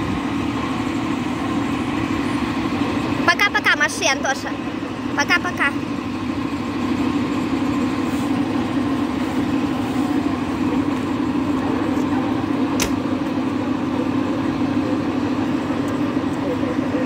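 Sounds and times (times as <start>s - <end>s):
diesel locomotive engine idling: 0.0s - 17.0s
sharp click: 12.8s - 13.0s.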